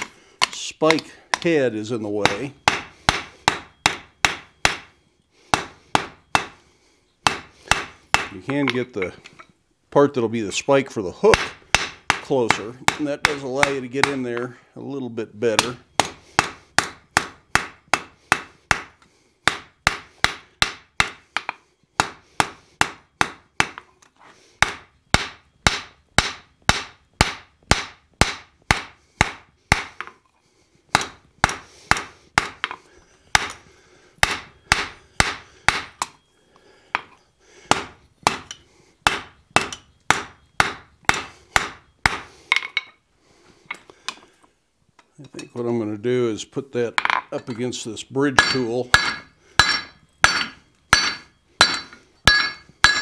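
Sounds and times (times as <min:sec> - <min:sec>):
hammer ringing on anvil: 0:48.4 - 0:53.0.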